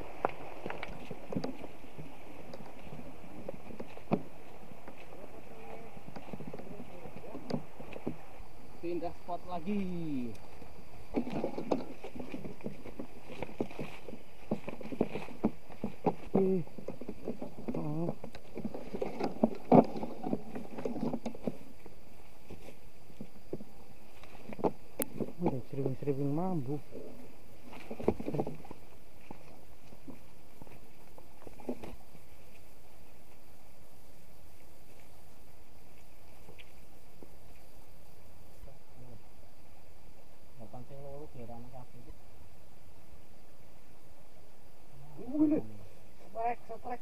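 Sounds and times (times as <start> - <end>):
rocky stream rushing: 0.0 - 6.3
footsteps on stones and undergrowth: 0.0 - 38.5
leaves and stems rustling: 0.0 - 47.0.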